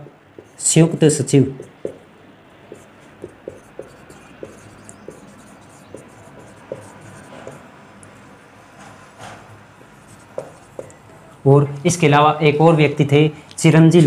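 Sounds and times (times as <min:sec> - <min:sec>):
marker scratching and squeaking: 0:00.4 - 0:02.0, 0:02.7 - 0:07.6, 0:10.0 - 0:11.4.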